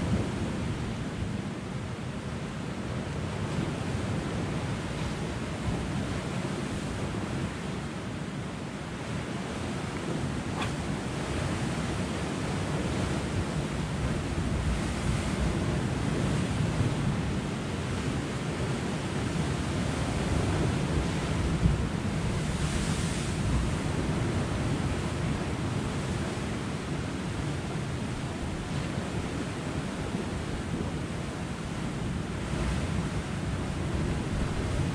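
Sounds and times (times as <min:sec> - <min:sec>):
surf washing against rocks: 0:08.6 - 0:34.9.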